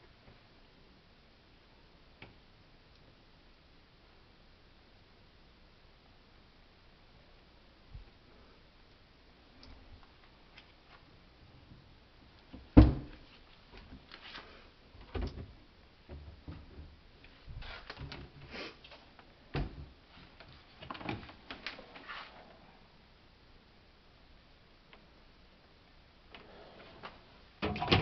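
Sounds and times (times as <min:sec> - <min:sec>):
wooden cabinet doors opening and shutting: 0:12.5 - 0:13.2, 0:15.0 - 0:17.0, 0:19.5 - 0:20.0, 0:27.6 - 0:28.0.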